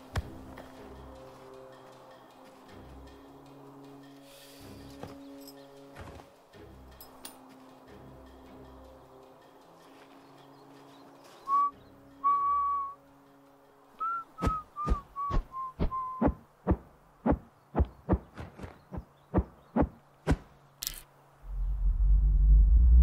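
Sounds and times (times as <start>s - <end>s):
high whistle tones: 11.5s - 13.0s, 14.0s - 16.4s
deep rumble: 21.4s - 23.0s.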